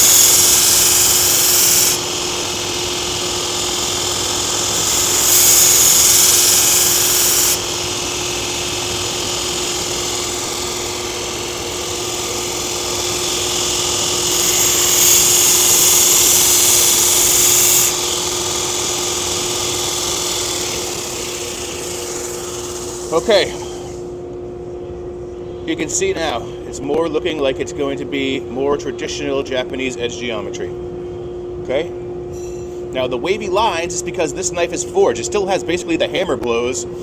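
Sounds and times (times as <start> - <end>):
belt grinder motor hum: 0.0 - 24.1
blade grinding hiss: 0.0 - 24.1.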